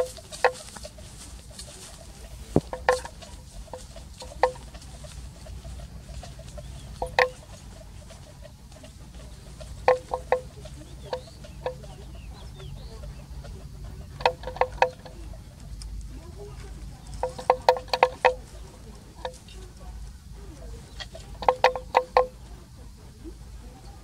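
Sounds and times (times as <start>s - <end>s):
faint bird chirps: 0.0s - 15.6s
fowl clucking: 0.0s - 24.0s
low hum: 0.0s - 24.0s.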